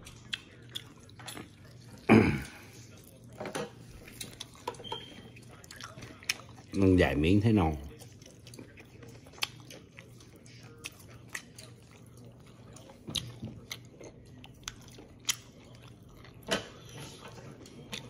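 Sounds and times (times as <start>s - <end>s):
person chewing close up: 0.0s - 18.0s.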